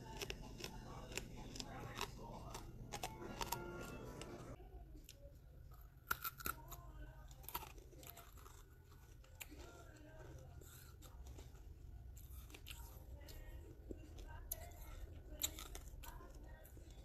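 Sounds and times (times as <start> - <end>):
chewing crunchy brick: 0.0 - 4.6, 5.7 - 17.0.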